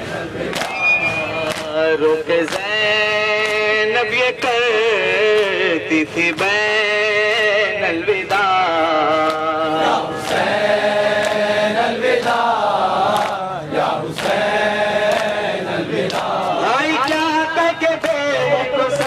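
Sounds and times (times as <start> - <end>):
hands slapping chests: 0.5 - 1.8
men chanting a lament: 1.2 - 19.0.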